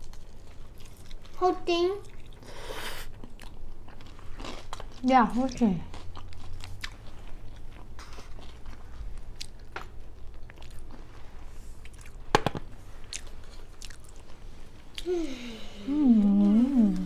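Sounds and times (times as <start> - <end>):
close chewing: 0.0 - 1.4, 2.0 - 11.1, 13.0 - 15.1.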